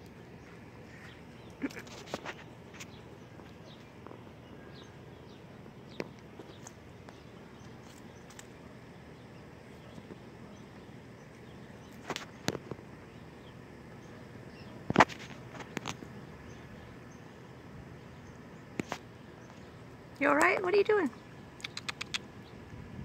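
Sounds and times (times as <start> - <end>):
sharp clicks and snaps: 21.6 - 22.3.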